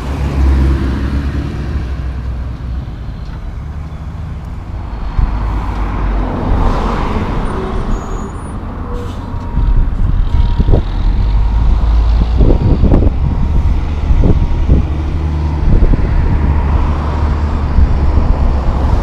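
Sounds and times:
engine rumble: 0.0 - 19.0
vehicle passing: 3.6 - 19.0
wind buffeting microphone: 4.8 - 8.0, 8.7 - 19.0.

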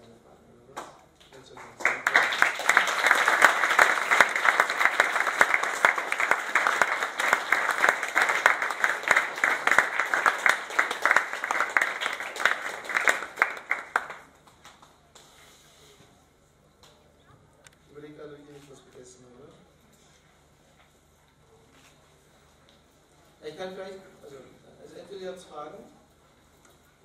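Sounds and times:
audience applauding: 1.5 - 15.0.

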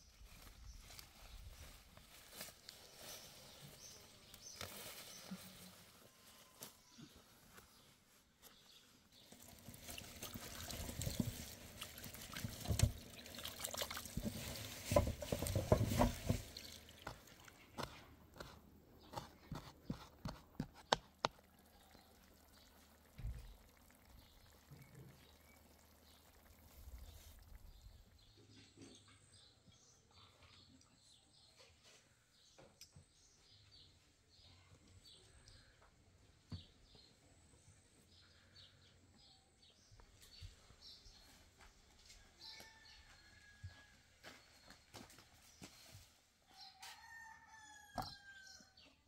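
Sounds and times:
liquid pouring and trickling: 9.2 - 17.8, 21.2 - 28.2.

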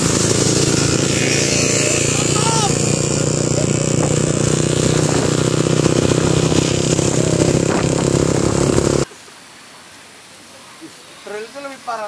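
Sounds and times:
motorcycle and scooter engines: 0.0 - 9.1
road noise: 0.0 - 9.5.

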